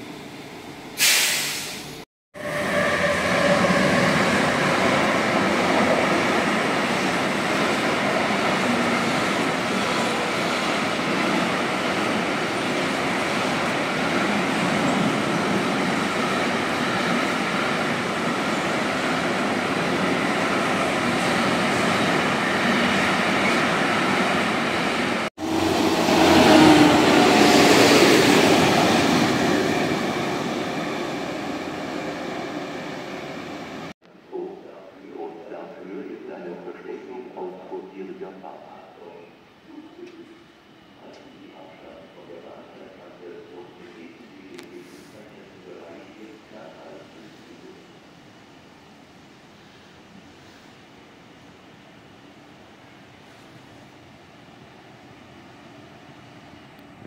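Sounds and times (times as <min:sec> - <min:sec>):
freight train wheels rumbling on rail: 0:01.0 - 0:33.9.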